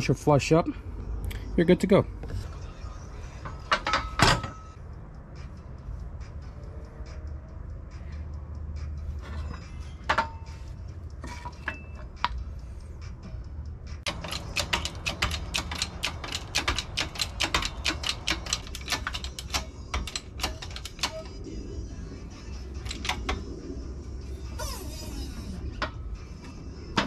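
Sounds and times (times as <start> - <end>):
hydraulic press pump clicking: 14.1 - 21.3.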